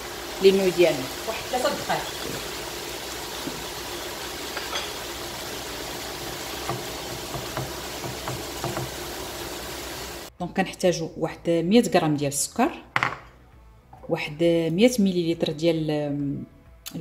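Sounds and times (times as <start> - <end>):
food sizzling in a pan: 0.0 - 10.3.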